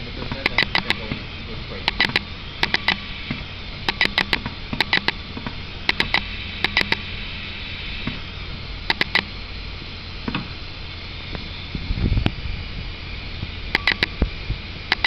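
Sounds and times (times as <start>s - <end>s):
welding machine blower hum and hiss: 0.0s - 15.0s
sharp clicks: 0.2s - 7.1s, 8.9s - 9.3s, 13.7s - 14.3s.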